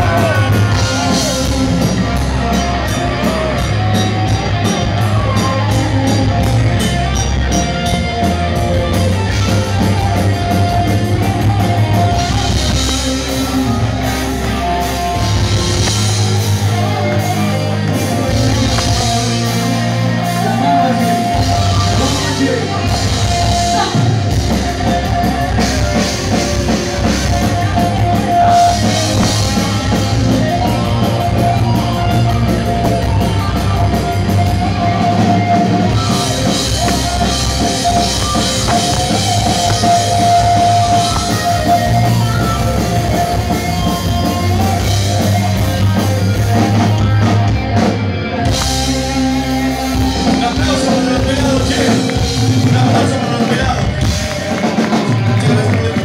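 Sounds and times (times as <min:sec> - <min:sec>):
drum kit: 0:00.0 - 0:56.0
electric guitar: 0:00.0 - 0:56.0
person singing: 0:48.9 - 0:56.0.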